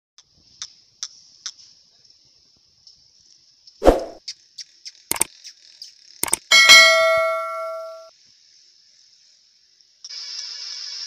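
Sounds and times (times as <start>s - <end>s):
quick clicks: 4.9s - 5.6s, 6.2s - 6.5s
bell-like metallic strike ringing: 6.5s - 8.1s.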